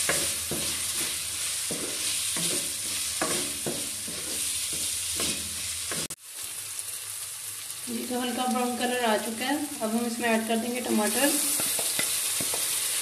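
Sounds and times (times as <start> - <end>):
wooden spoon scraping a pan: 0.0 - 6.2
onions sizzling in hot oil: 0.0 - 13.0.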